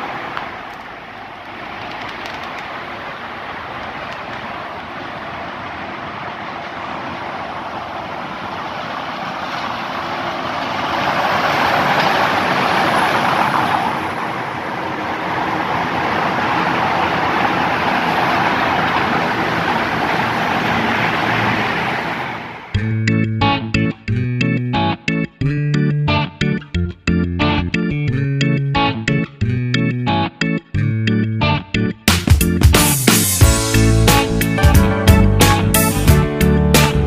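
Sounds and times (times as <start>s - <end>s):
coach passing close: 0.0s - 23.9s
lorry driving through tunnel: 0.0s - 37.0s.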